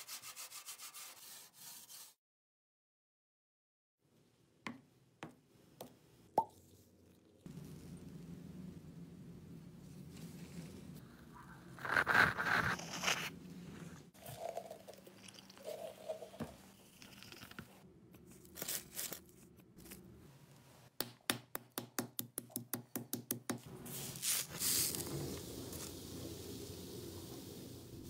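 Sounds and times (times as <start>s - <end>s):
handling and crinkling: 17.0s - 20.2s.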